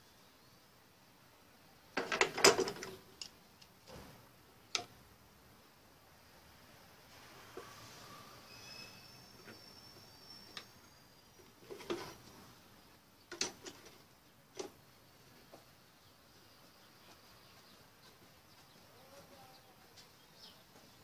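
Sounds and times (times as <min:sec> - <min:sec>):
faint high chirp: 0:07.5 - 0:12.9.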